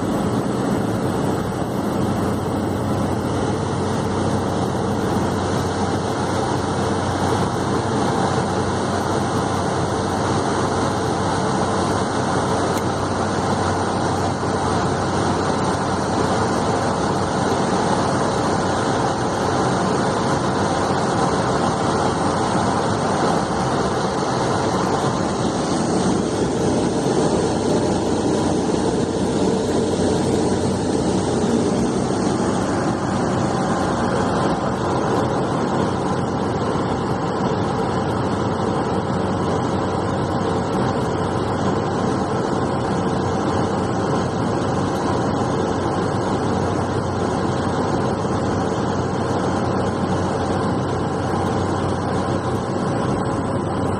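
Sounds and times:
rushing noise: 0:00.0 - 0:38.3
turboprop engine drone: 0:00.0 - 0:53.9.

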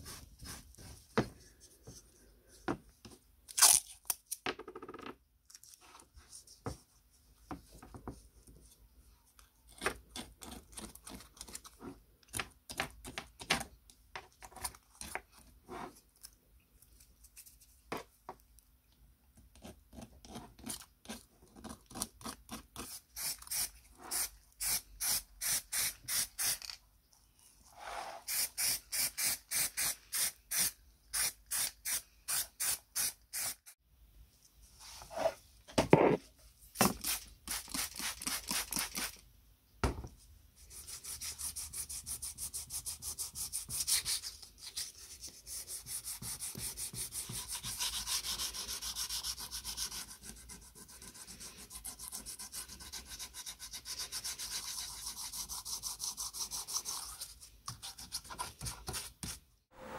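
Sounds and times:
knife scratching strokes: 0:40.6 - 0:59.4.

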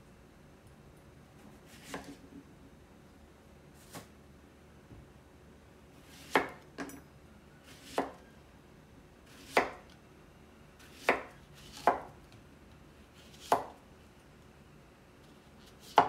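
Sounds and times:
knife chopping on wooden board: 0:01.8 - 0:02.2, 0:06.1 - 0:06.9, 0:07.8 - 0:08.2, 0:09.5 - 0:09.8, 0:10.9 - 0:12.1, 0:13.4 - 0:13.8.

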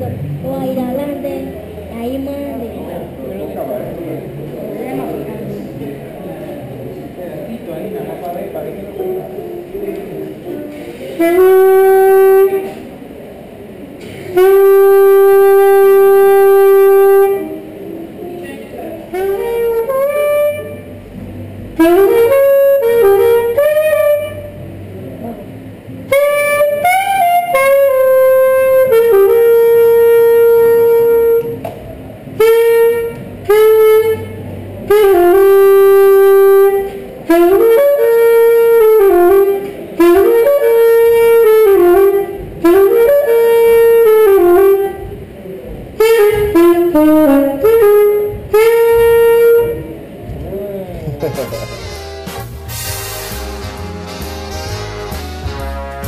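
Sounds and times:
saxophone melody: 0:08.9 - 0:13.0, 0:14.0 - 0:56.0.

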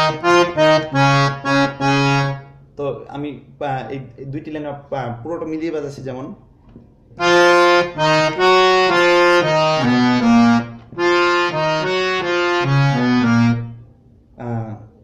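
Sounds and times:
harmonium melody: 0:00.0 - 0:02.6, 0:07.2 - 0:13.8.

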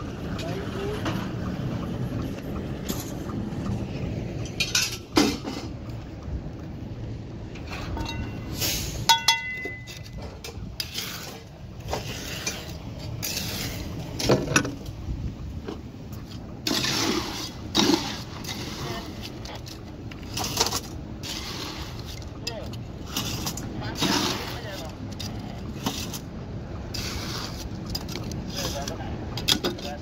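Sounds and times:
concrete mixer truck rumbling: 0:00.0 - 0:30.0
trowel clinking against metal pan: 0:09.1 - 0:10.2.

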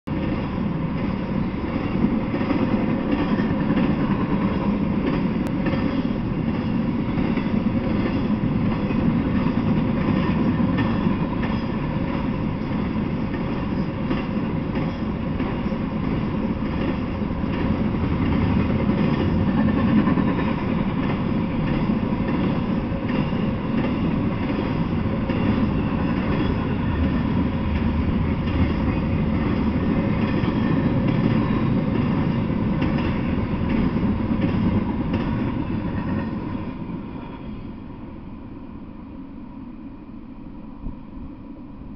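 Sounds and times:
train wheels rumbling on rails: 0:00.1 - 0:41.9
faint steady whine: 0:36.7 - 0:41.9.

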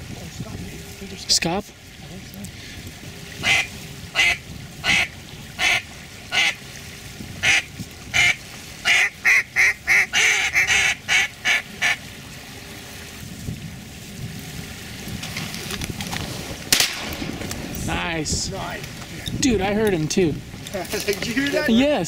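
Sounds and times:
duck call quacks: 0:03.4 - 0:06.6, 0:07.4 - 0:12.0.

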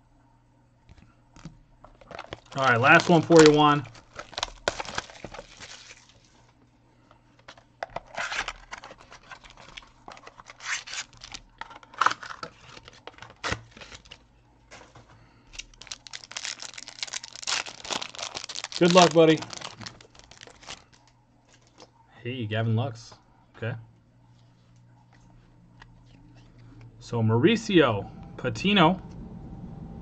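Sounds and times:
wrapping tearing and crinkling: 0:01.8 - 0:06.5, 0:07.4 - 0:21.9.

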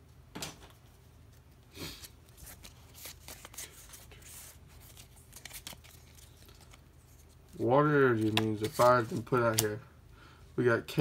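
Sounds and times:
trading cards rustling: 0:02.0 - 0:09.8
cards clicking: 0:08.1 - 0:09.8.

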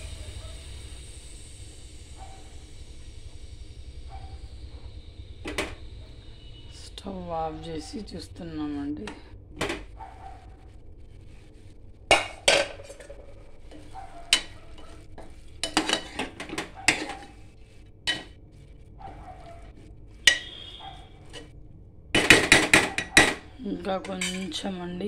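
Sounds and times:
spoon scraping metal pot: 0:12.1 - 0:21.5, 0:22.2 - 0:24.8.

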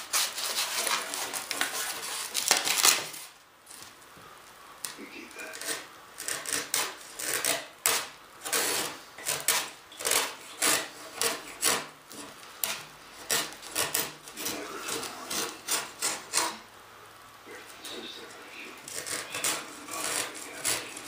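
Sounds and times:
razor blade scraping fiberglass: 0:00.0 - 0:03.3, 0:05.3 - 0:16.6, 0:18.8 - 0:21.0.

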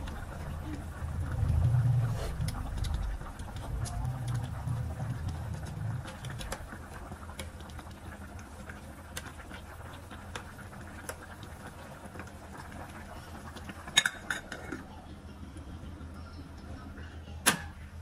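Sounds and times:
low hum: 0:00.0 - 0:08.0.

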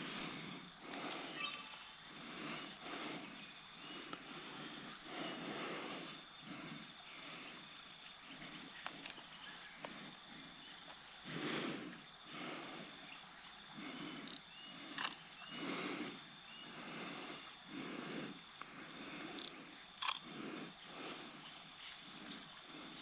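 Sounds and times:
camera beep: 0:14.3 - 0:15.2, 0:19.4 - 0:20.2
camera shutter click: 0:20.0 - 0:20.2.

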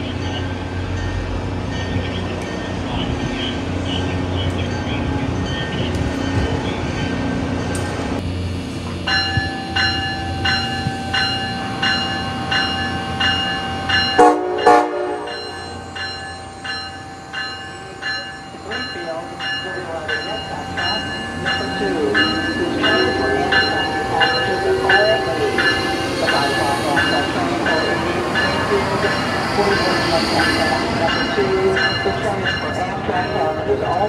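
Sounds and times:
electronic locomotive bell ringing: 0:09.0 - 0:34.0
train horn blasts: 0:14.2 - 0:15.8.

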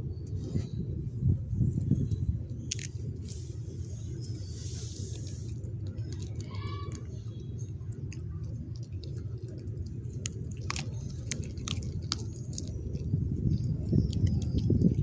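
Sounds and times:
bone crunching and cracking: 0:02.5 - 0:03.2, 0:05.1 - 0:15.0
dog chewing wetly: 0:05.1 - 0:15.0.

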